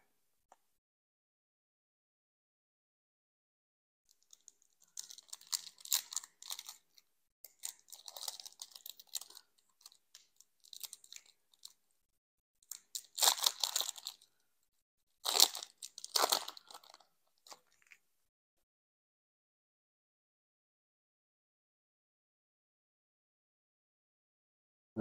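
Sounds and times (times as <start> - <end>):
foil wrapper crinkling and tearing: 4.2 - 6.8, 7.6 - 11.8, 12.7 - 14.3, 15.2 - 18.0.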